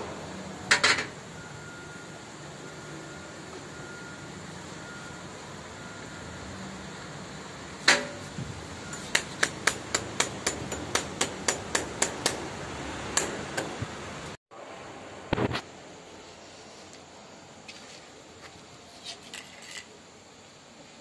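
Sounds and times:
hammer striking metal fixing: 7.8s - 13.8s.

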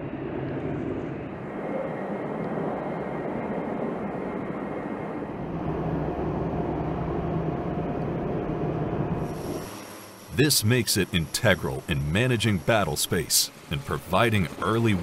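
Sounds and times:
propeller aircraft flying overhead: 0.0s - 10.1s.

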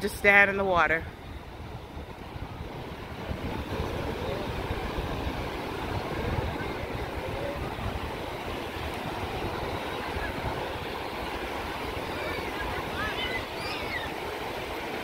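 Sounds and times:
surf washing onto beach: 0.0s - 15.0s
wind rumbling on microphone: 0.0s - 15.0s.

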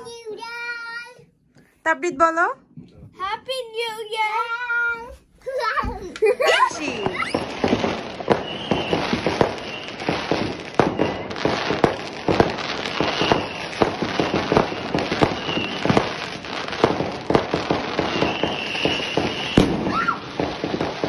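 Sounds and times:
fireworks bangs and crackles: 5.8s - 21.0s.

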